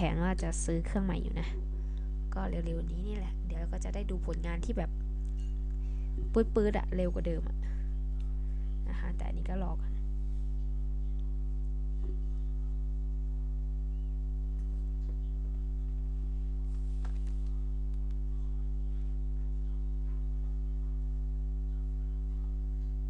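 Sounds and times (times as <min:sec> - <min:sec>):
electrical mains hum: 0:00.0 - 0:23.0.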